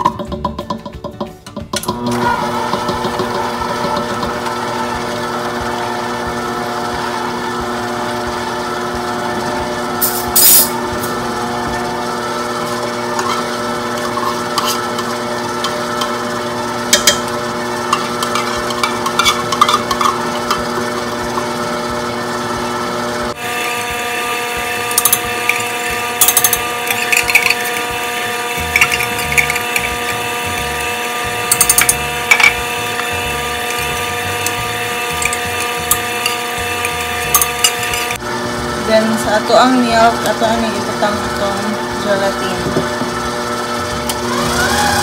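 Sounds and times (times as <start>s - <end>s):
stand mixer running: 1.1s - 45.0s.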